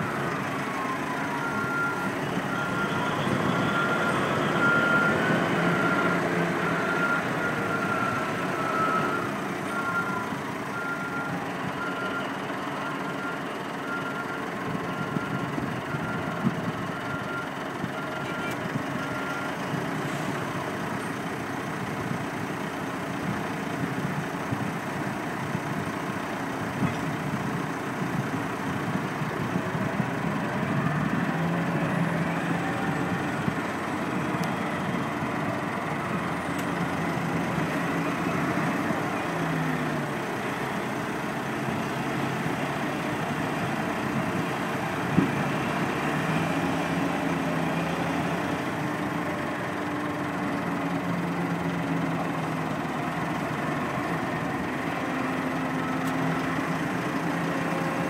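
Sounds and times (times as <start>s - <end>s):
reversing alarm beeping: 0.0s - 19.7s
diesel engines running: 0.0s - 58.0s.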